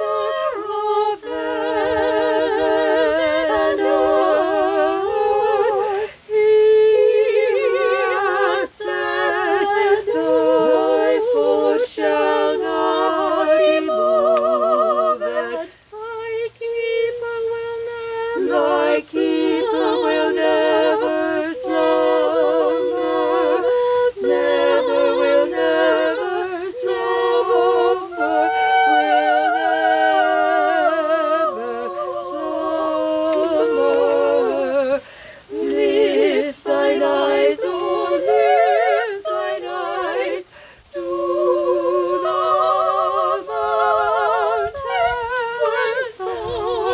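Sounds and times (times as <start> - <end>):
vocal group singing a cappella: 0.0 - 46.9.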